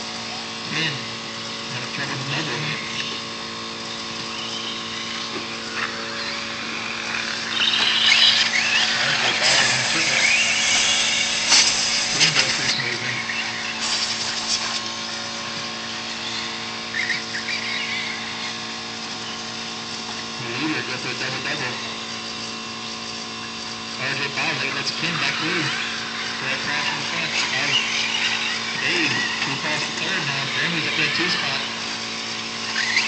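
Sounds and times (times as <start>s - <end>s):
rc car motors whining: 0.0s - 33.0s
steady low hum: 0.0s - 33.0s.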